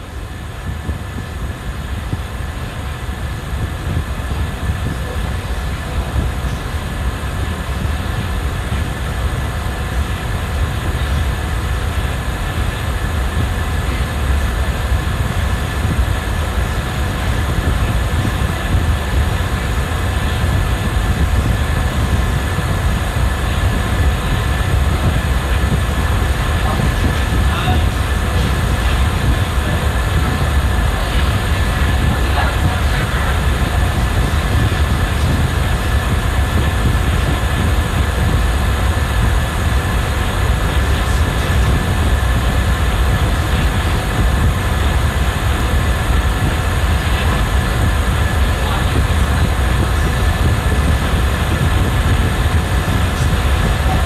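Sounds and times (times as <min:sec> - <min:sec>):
deep rumble: 0:00.0 - 0:54.0.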